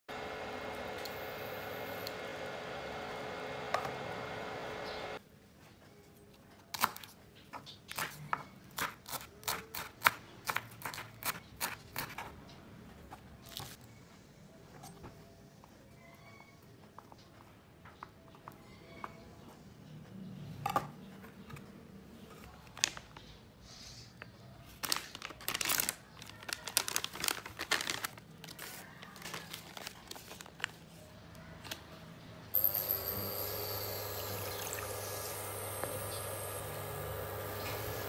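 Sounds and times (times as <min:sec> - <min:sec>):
plastic packet crinkling: 0:24.8 - 0:30.9.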